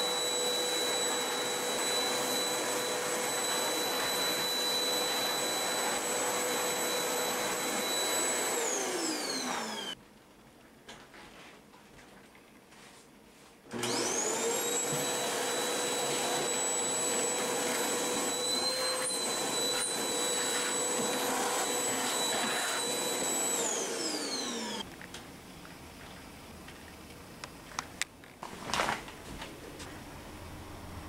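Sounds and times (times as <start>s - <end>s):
vacuum cleaner motor whining: 0.0s - 10.0s, 13.7s - 24.8s.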